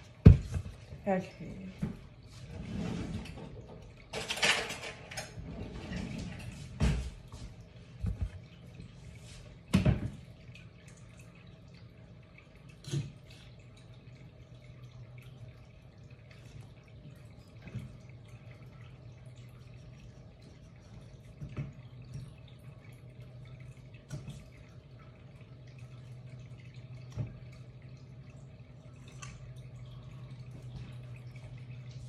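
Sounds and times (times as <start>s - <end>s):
low steady hum: 0.0s - 32.0s
kitchen knocks and clatters: 3.0s - 8.4s, 9.7s - 10.2s.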